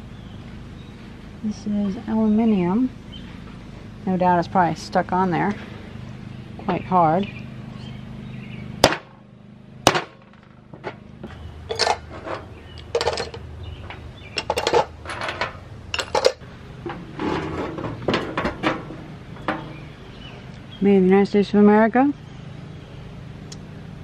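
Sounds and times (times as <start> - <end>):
metal parts clattering in steel bowl: 11.7 - 13.4, 14.4 - 16.4.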